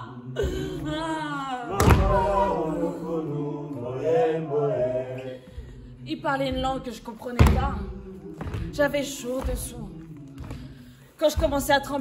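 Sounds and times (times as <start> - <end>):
voices chanting: 0.0 - 12.0
heavy thud: 1.7 - 2.4, 7.4 - 8.8.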